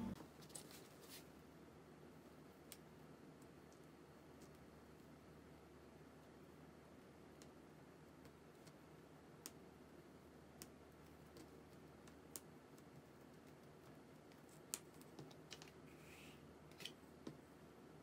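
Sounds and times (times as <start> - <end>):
paper rustling: 0.3 - 1.3.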